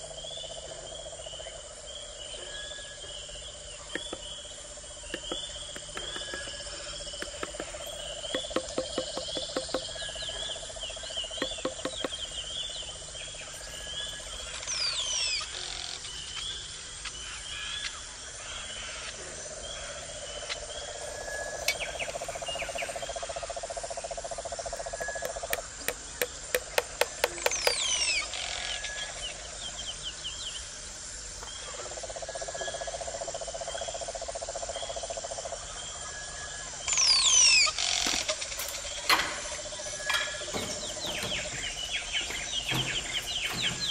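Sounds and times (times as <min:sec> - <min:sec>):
insects chirping: 0:00.0 - 0:43.9
sharp taps: 0:05.1 - 0:06.6, 0:07.2 - 0:09.9, 0:11.4 - 0:12.2, 0:25.0 - 0:27.8
birds whistling: 0:05.1 - 0:10.3, 0:36.9 - 0:43.9.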